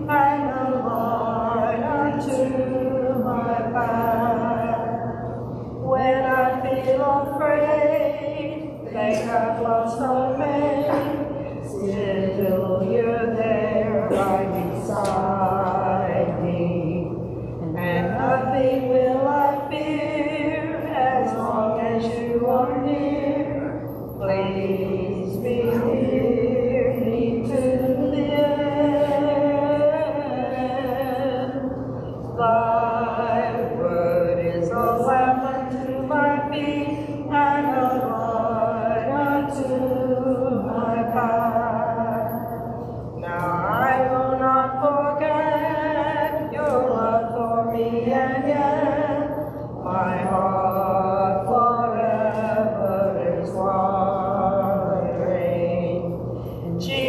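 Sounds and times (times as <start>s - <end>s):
woman singing a hymn: 0.0s - 57.0s.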